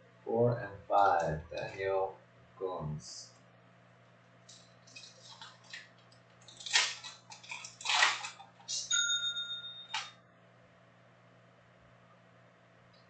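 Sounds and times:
foil wrapper crinkling and tearing: 4.5 - 8.9.

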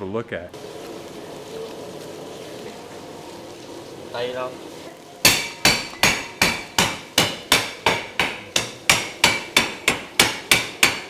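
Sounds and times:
cleaver chopping on wooden block: 5.3 - 11.0.

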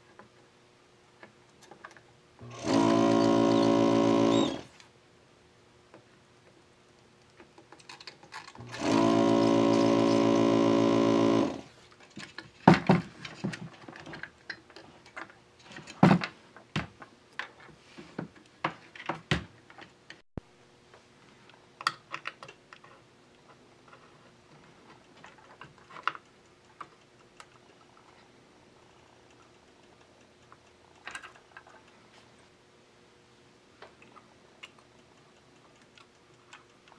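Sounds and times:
light clicks and taps of tools: 1.2 - 2.1, 11.9 - 20.2, 20.9 - 32.4, 33.8 - 36.9
desoldering pump buzzing: 2.4 - 4.8, 8.6 - 11.7.

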